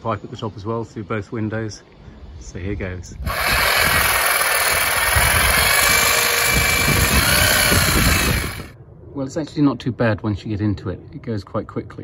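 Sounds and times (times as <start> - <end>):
reciprocating saw cutting pipe: 3.3 - 8.7.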